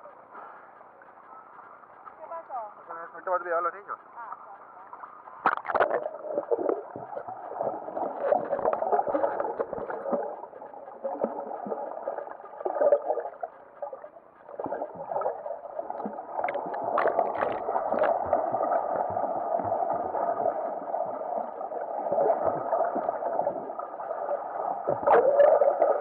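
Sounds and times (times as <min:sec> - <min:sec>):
muffled underwater bubbling: 0:04.2 - 0:26.0
water splash: 0:05.4 - 0:10.4, 0:14.5 - 0:20.4.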